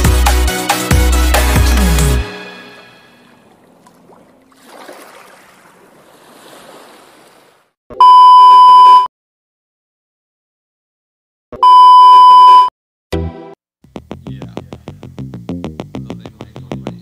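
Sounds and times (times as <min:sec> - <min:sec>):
intro music: 0:00.0 - 0:03.5
ocean wave sound effect: 0:02.3 - 0:07.7
test-tone beep: 0:08.0 - 0:09.1, 0:11.6 - 0:12.7.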